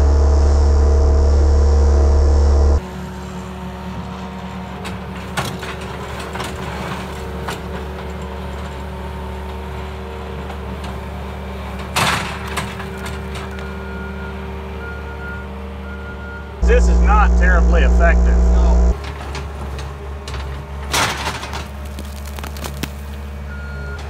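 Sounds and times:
diesel engine running: 0:00.0 - 0:06.2, 0:16.6 - 0:19.2
sharp cracks and knocks: 0:20.3 - 0:23.2.

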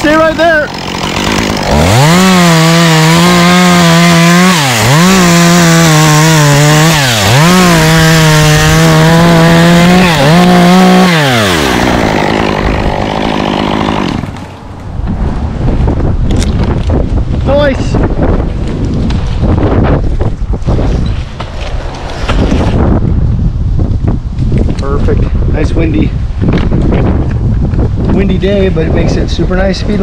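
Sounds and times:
chainsaw revving: 0:00.6 - 0:14.6.

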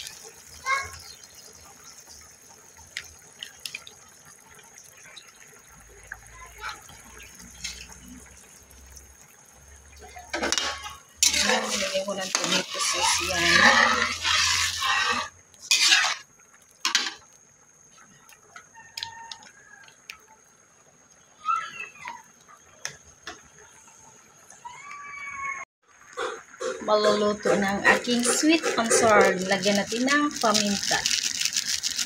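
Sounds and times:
metal spatula scraping wok: 0:07.5 - 0:08.0, 0:10.3 - 0:16.3.

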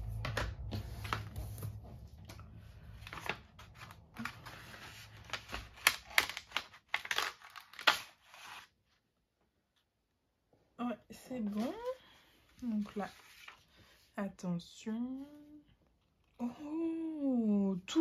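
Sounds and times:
paper packaging crinkling: 0:02.8 - 0:08.7.

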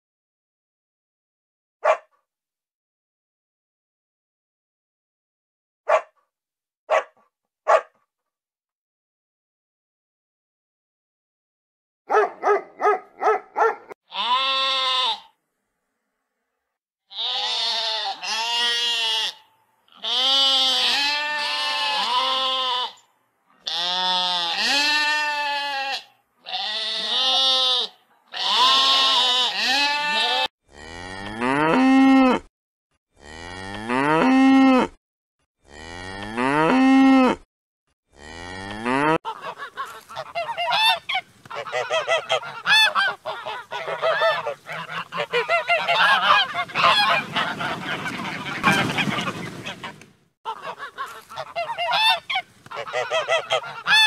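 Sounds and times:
sheep bleating: 0:14.1 - 0:15.3, 0:17.1 - 0:23.0, 0:23.6 - 0:30.5
goose honking: 0:23.6 - 0:30.5, 0:39.3 - 0:54.0
cow mooing: 0:38.1 - 0:39.2.

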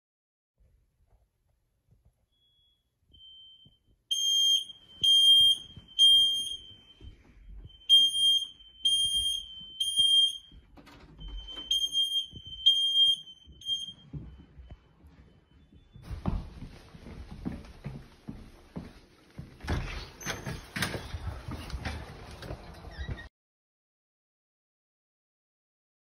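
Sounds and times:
smoke alarm beeping: 0:02.3 - 0:16.1
faint alarm chirps: 0:02.3 - 0:16.4.

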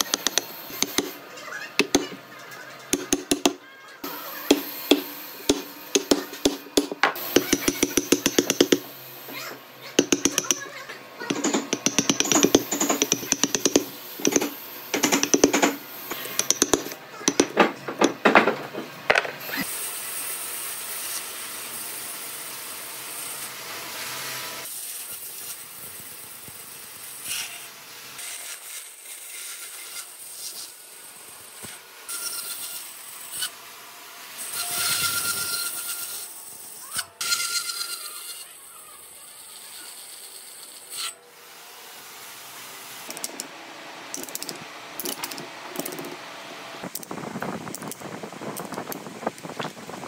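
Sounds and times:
chisel knocking and scraping wood: 0:00.0 - 0:01.2, 0:01.8 - 0:02.2, 0:02.9 - 0:03.6, 0:04.5 - 0:08.9, 0:10.0 - 0:19.6
bandsaw cutting wood: 0:00.0 - 0:02.2.

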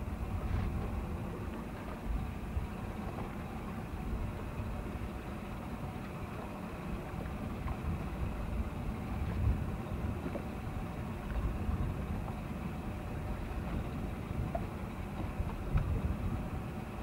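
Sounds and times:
wind on microphone: 0:00.0 - 0:02.8, 0:07.3 - 0:17.0
motorboat engine rumble: 0:00.0 - 0:17.0.

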